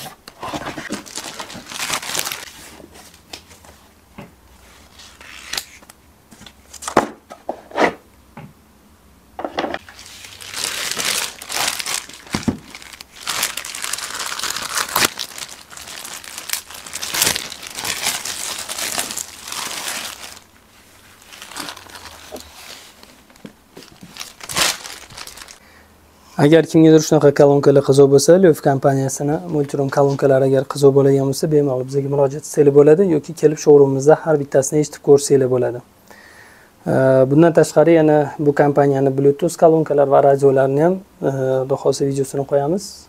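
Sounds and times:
plastic bag crinkling: 0:00.8 - 0:02.6, 0:09.8 - 0:25.6.

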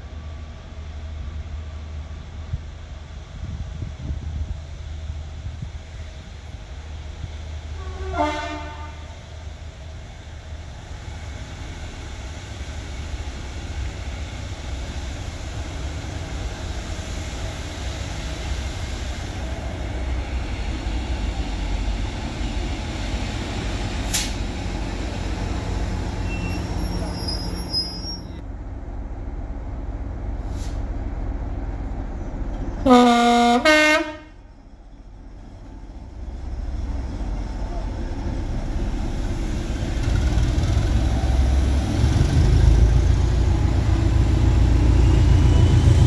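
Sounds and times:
train engine and wheels rumbling: 0:00.0 - 0:46.0
locomotive horn toot: 0:07.8 - 0:09.1, 0:32.9 - 0:34.4
sharp click: 0:24.1 - 0:24.4.

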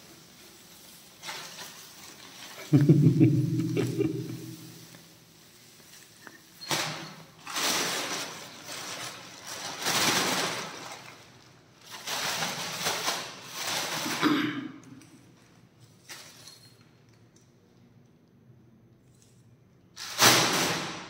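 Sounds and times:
plastic bag rustling and crinkling: 0:00.0 - 0:14.3.

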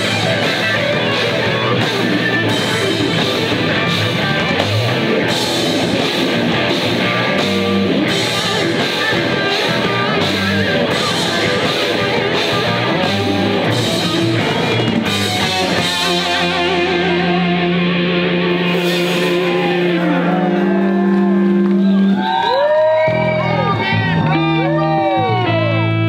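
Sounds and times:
distorted electric guitar: 0:00.0 - 0:26.0
punk rock band playing: 0:00.0 - 0:26.0
person singing: 0:08.4 - 0:22.1.

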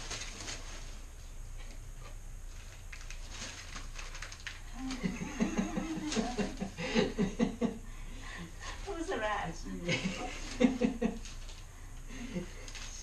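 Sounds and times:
newspaper rustling: 0:00.0 - 0:01.2, 0:02.4 - 0:06.7
person laughing: 0:04.8 - 0:07.8.

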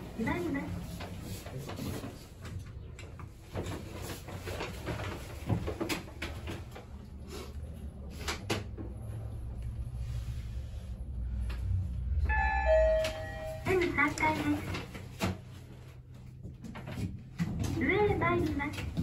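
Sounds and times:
elevator humming: 0:11.2 - 0:14.8.

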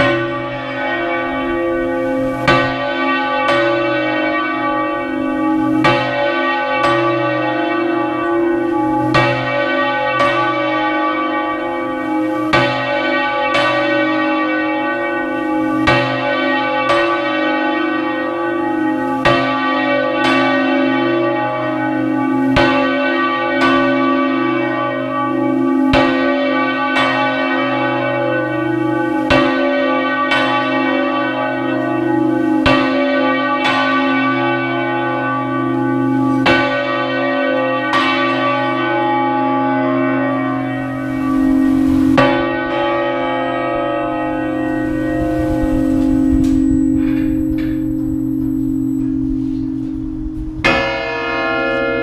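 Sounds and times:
church bell clapper strikes: 0:00.0 - 0:52.0
bell ringing hum: 0:40.4 - 0:52.0.

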